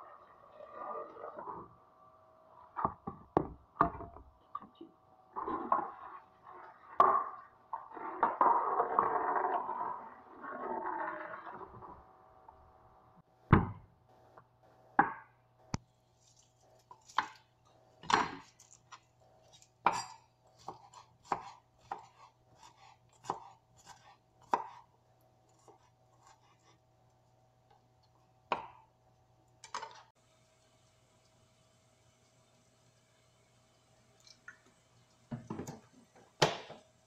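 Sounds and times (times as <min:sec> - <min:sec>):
knife chopping on wooden board: 0:20.6 - 0:24.8.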